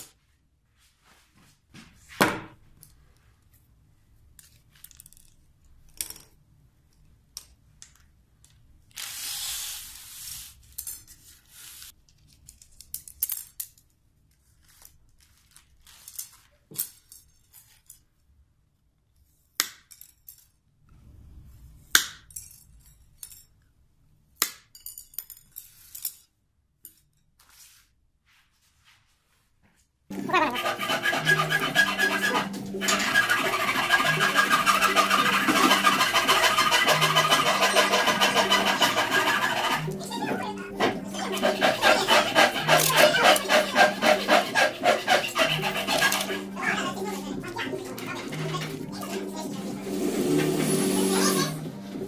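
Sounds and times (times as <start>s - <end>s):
wooden sticks clicking and tapping: 30.3s - 40.2s.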